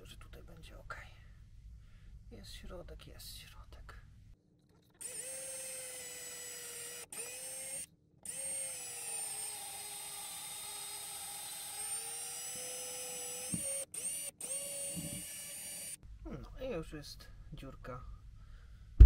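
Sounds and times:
cordless drill whining: 5.0 - 16.0.

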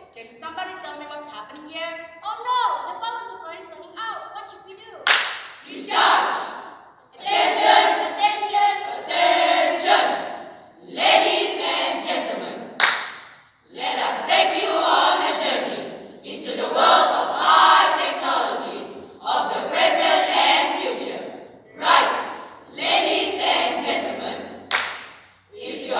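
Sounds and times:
children singing in unison: 5.7 - 12.7, 13.7 - 24.6, 25.5 - 25.9.

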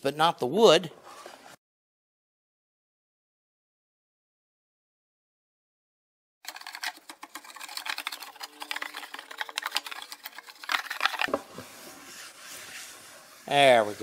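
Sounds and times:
plane scraping glue off wood: 11.0 - 14.0.

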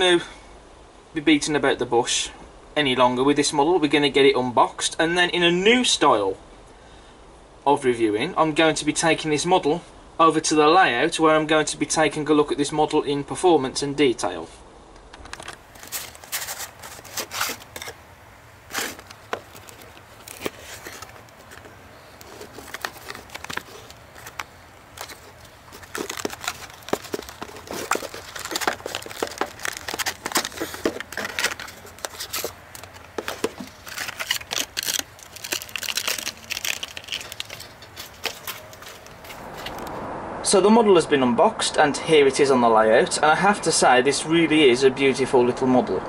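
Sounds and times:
plastic crinkling: 15.3 - 39.9.

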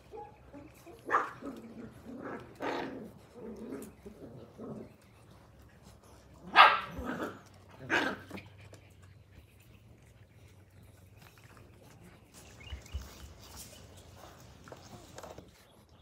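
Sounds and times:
puppies barking: 0.0 - 5.0, 6.4 - 8.6.

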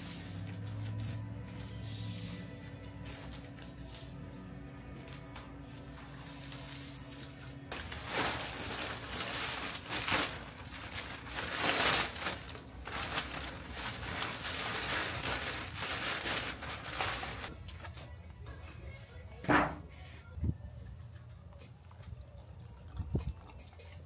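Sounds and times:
faint background music: 0.0 - 24.0
aluminium foil crinkling: 6.5 - 18.0.

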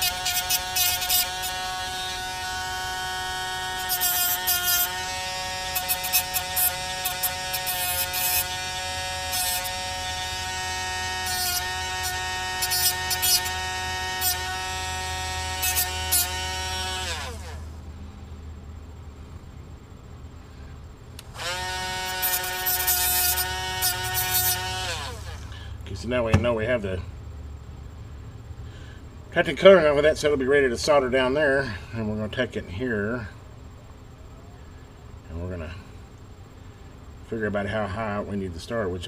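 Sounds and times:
cut-off wheel grinding wire: 0.0 - 17.7, 21.2 - 26.6
rotary tool whining: 0.0 - 17.8, 21.2 - 25.8.

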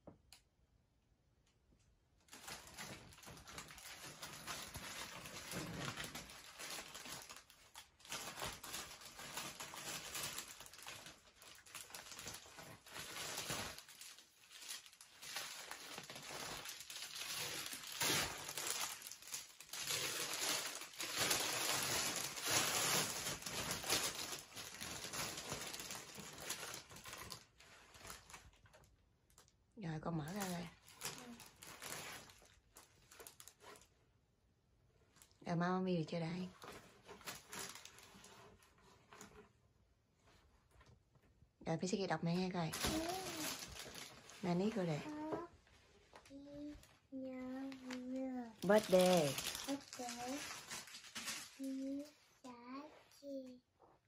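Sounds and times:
gift packaging crinkling and tearing: 2.3 - 29.6, 30.2 - 34.0, 36.5 - 39.4, 42.3 - 45.5, 46.2 - 52.2.

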